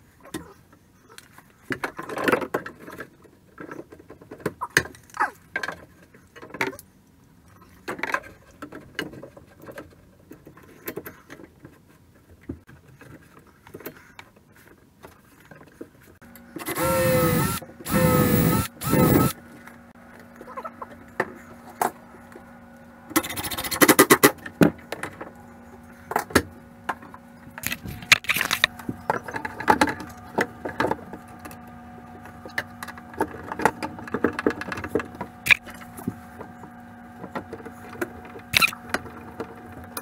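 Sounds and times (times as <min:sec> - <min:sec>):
faint steady hum: 0:12.4 - 0:40.0.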